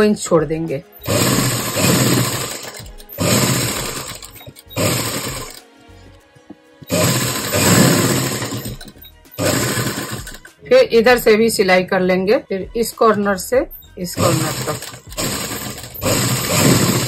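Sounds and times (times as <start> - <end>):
sewing machine stitching: 0.9 - 5.6, 6.9 - 10.6, 14.1 - 17.0.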